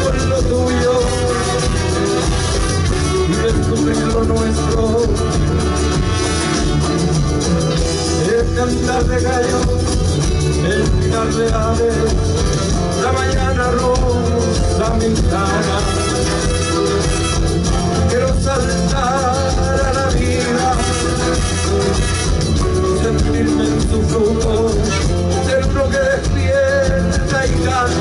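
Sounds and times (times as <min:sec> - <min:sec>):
trumpet: 0:00.0 - 0:07.8, 0:15.0 - 0:23.6
trombone: 0:00.0 - 0:09.5, 0:12.3 - 0:28.0
drum kit: 0:00.0 - 0:28.0
guitars: 0:00.0 - 0:28.0
shaken percussion: 0:00.0 - 0:28.0.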